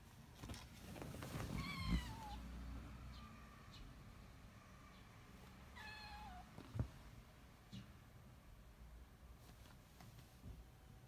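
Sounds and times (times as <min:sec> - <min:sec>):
kitten meowing: 0:05.8 - 0:06.5.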